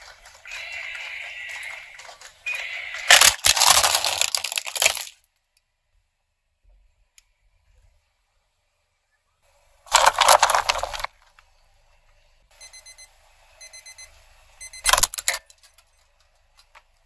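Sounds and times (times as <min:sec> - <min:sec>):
loud crunch of clock breaking: 0:03.1 - 0:05.2
alarm clock beeping: 0:12.6 - 0:15.1.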